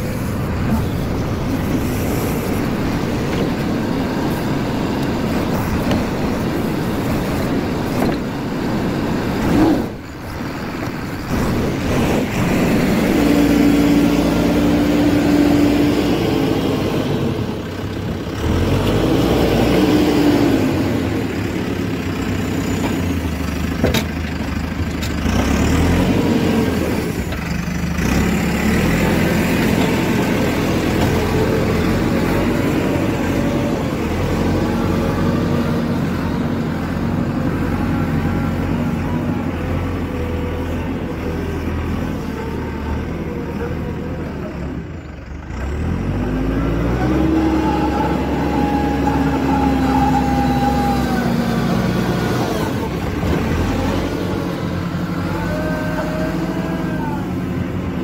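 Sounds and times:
diesel engine running: 0.0s - 58.0s.

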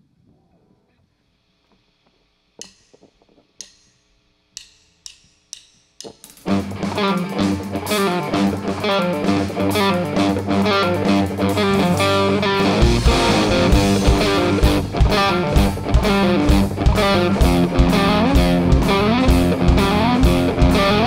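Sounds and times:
drumstick count-in clicks: 2.6s - 6.5s
live rock band: 6.4s - 21.0s.

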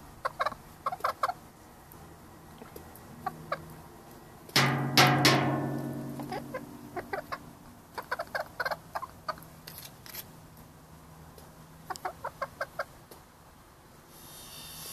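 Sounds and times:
hen clucking: 0.2s - 1.4s, 5.2s - 9.5s, 11.8s - 13.0s.

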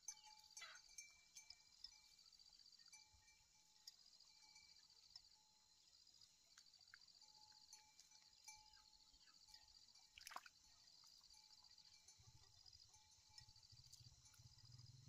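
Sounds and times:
water splash: 10.2s - 10.5s.

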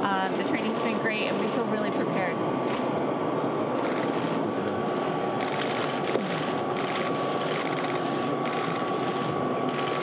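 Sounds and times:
machinery rushing hum: 0.0s - 10.0s
rapid clicking bursts: 5.4s - 10.0s.

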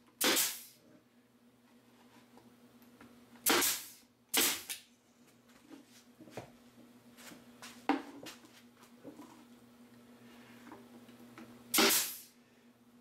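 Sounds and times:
pneumatic stapler bang: 0.2s - 0.8s, 3.4s - 4.8s, 11.7s - 12.3s.

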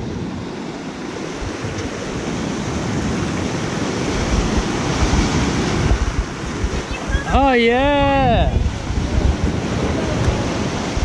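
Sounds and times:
small waves breaking in surf: 0.0s - 11.0s.

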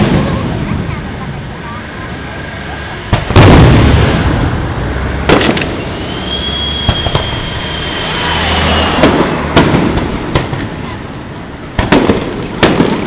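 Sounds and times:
fireworks bangs: 0.0s - 13.0s
low rumble: 3.2s - 10.2s
firework high whistle: 3.7s - 9.6s.

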